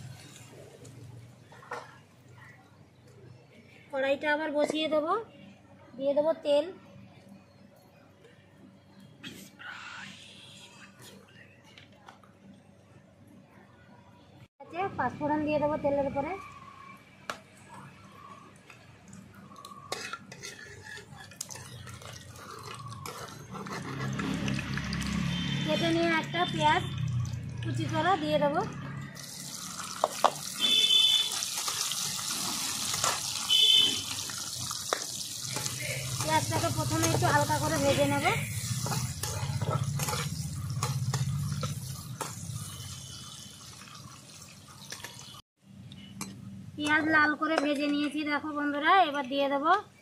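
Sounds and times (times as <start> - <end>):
spices frying in hot oil: 18.6 - 28.4, 29.1 - 45.4
spatula scraping iron pan: 19.9 - 24.5, 35.5 - 42.8.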